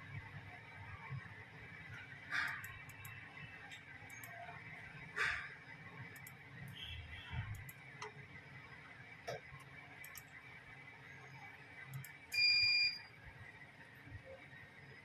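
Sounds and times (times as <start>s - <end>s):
high-pitched electronic beep: 12.3s - 13.1s.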